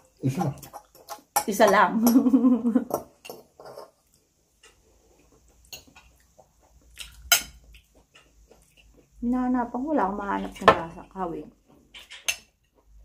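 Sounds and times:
cutlery clinking on a plate: 2.9s - 4.0s, 7.0s - 7.6s, 11.9s - 12.6s.

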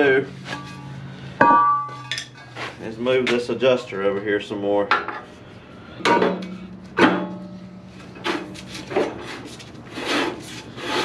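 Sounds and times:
low metallic ring: 0.4s - 2.4s
metal knocks on brake drum: 1.4s - 2.2s.

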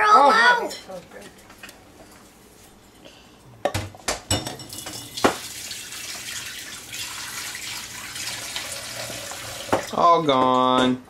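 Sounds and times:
kitchen tap running: 4.6s - 10.0s.

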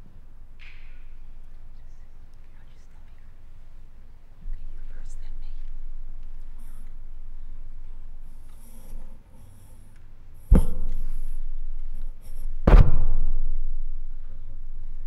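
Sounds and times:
faint rustling: 0.7s - 12.7s
loud booming thumps: 10.4s - 11.6s, 12.6s - 14.3s.

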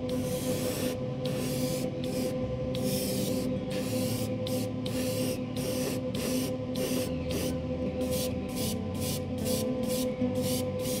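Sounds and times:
steady hum: 0.0s - 11.0s
airbrush spraying in hissing bursts: 0.1s - 11.0s.

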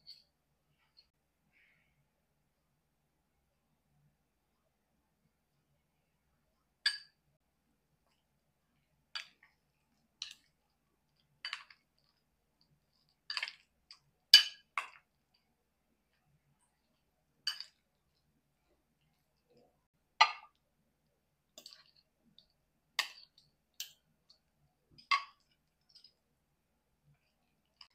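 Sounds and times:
metal utensils clinking glass bowl: 14.4s - 15.0s, 17.5s - 17.8s.

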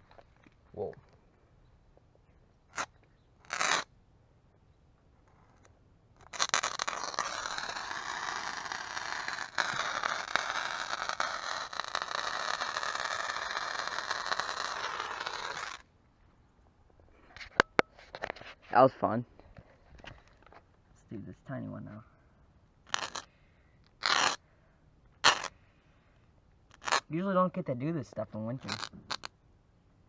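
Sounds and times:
firework hissing: 6.3s - 15.8s.

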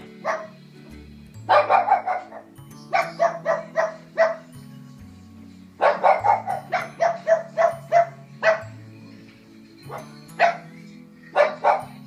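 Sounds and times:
dog barking: 0.2s - 0.6s, 1.5s - 4.5s, 5.8s - 8.7s, 9.9s - 12.0s.

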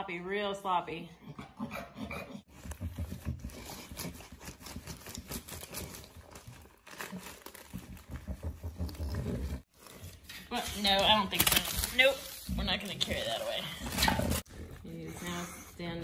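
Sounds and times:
parchment paper crinkling: 3.4s - 14.8s.

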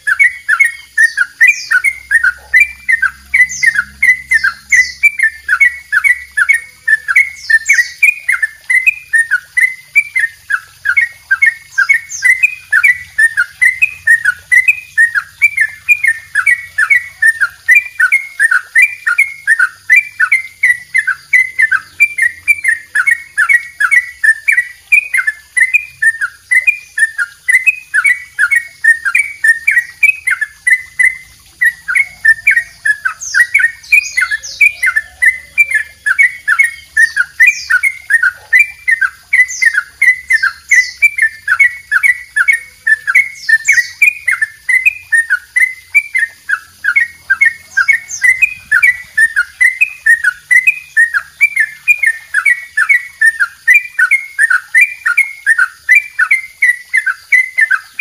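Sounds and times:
bird singing quick repeated notes: 0.0s - 58.0s.

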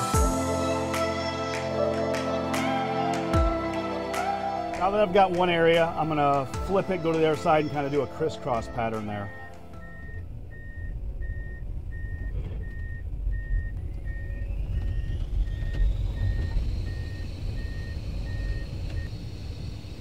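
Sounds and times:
motion alarm beeping: 6.6s - 19.1s
machine whine rising: 9.4s - 20.0s.

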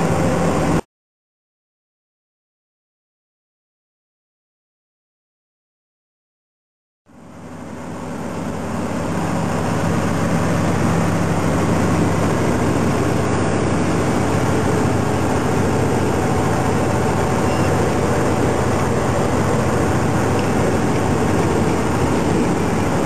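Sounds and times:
road noise: 0.0s - 0.8s, 7.5s - 23.0s
truck engine drone: 0.0s - 0.8s, 7.1s - 23.0s.

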